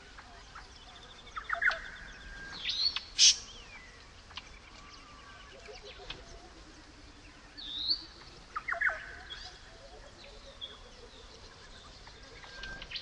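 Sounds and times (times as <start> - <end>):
low rapid pulsing bird call: 0.0 - 13.0
birds whistling: 0.6 - 6.3, 12.0 - 13.0.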